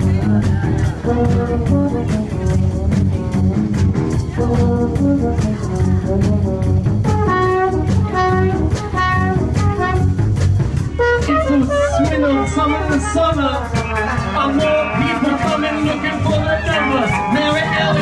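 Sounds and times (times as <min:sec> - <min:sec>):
soul band playing: 0:00.0 - 0:18.0
trombone: 0:00.0 - 0:18.0.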